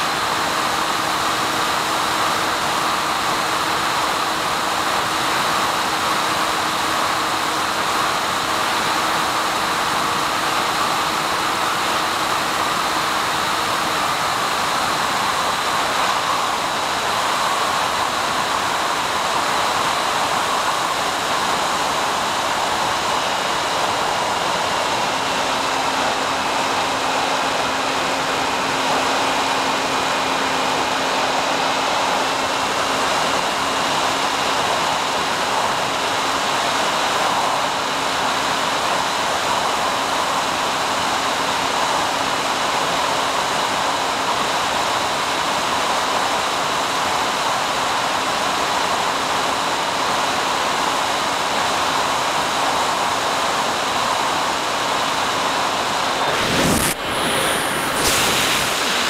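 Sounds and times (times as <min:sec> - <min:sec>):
static hiss: 0:55.7 - 0:59.0
faint high whines: 0:56.0 - 0:59.0.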